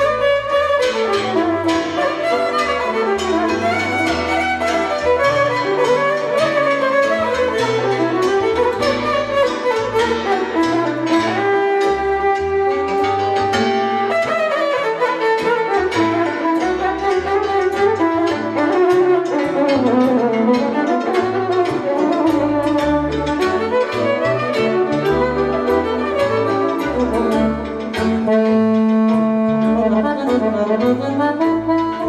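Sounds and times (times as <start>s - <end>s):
cimbalom: 0.0s - 32.0s
double bass: 0.0s - 32.0s
electric violin melody: 0.0s - 32.0s
accordion: 23.3s - 32.0s.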